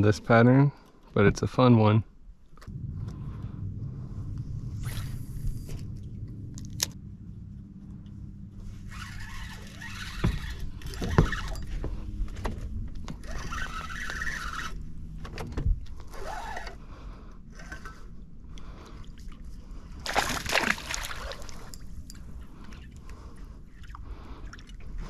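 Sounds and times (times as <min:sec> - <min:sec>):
small motor humming: 0:08.8 - 0:11.8, 0:13.1 - 0:14.9, 0:16.1 - 0:16.8, 0:17.5 - 0:18.1.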